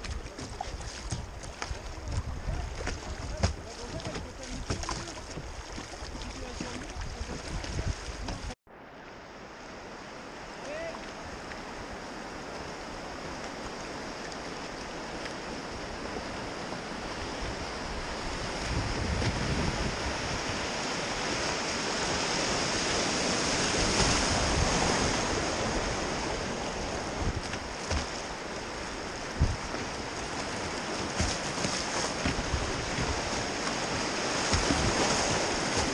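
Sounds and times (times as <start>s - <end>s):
sharp water splashes: 0.0s - 8.6s, 20.7s - 35.9s
river water rushing: 0.0s - 35.9s.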